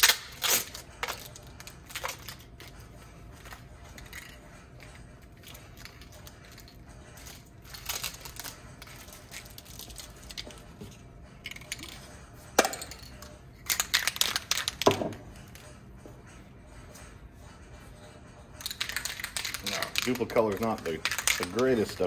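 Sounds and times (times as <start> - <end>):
tape peeling and tearing: 0.0 - 2.4.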